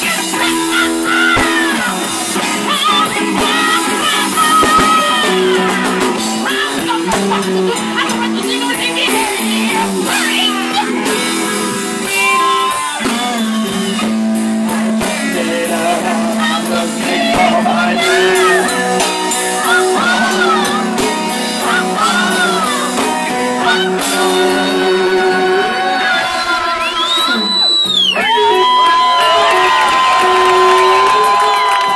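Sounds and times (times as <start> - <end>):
man and women singing: 0.0 - 27.5
live band playing: 0.0 - 31.9.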